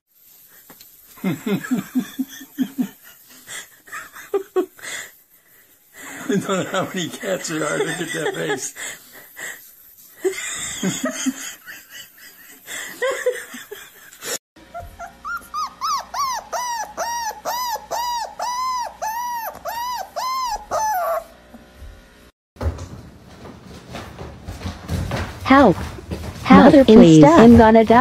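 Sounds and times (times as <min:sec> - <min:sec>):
dog whining: 0:14.6 - 0:21.4
knocks and rustles: 0:22.6 - 0:28.0.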